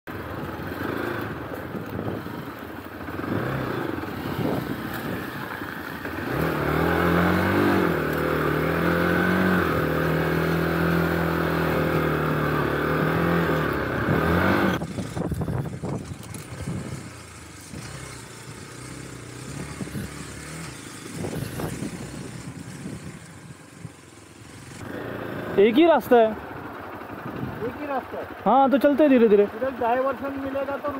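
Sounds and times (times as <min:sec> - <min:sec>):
motorcycle engine running: 0:00.1 - 0:30.9
clatter and knocks on dirt trail: 0:14.9 - 0:18.2.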